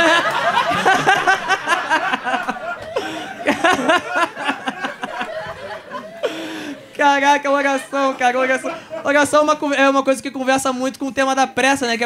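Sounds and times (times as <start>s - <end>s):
audience laughing: 0.0s - 9.6s.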